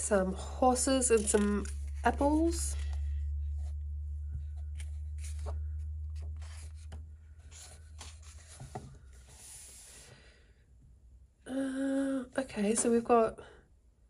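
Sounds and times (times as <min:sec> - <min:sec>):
woman's voice: 0:00.0 - 0:02.9, 0:11.5 - 0:13.6
low hum: 0:00.0 - 0:09.4
paper pages rustling: 0:01.0 - 0:10.0.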